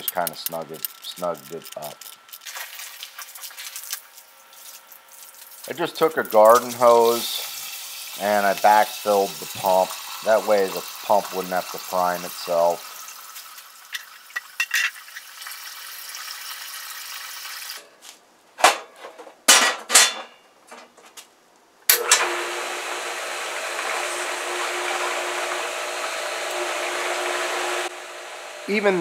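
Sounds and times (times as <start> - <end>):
pump motor humming: 0.0 - 14.0, 21.9 - 29.0
hose water running: 0.0 - 17.8, 21.9 - 29.0.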